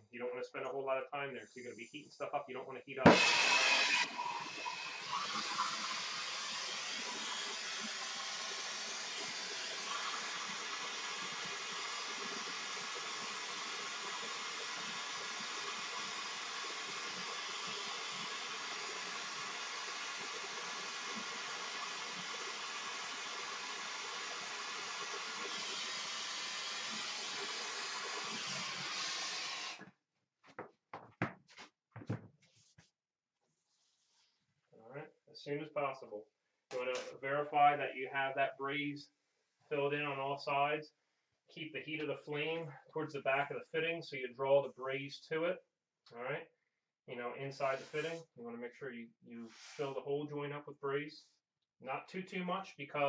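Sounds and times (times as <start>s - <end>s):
torch flame hissing: 3.1s - 29.8s.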